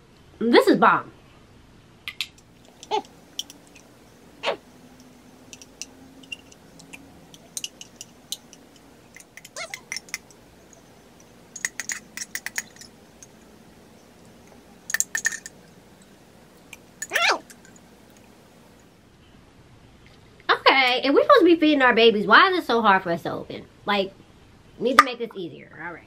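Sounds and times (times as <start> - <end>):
spoon scraping plastic container: 11.2 - 13.4.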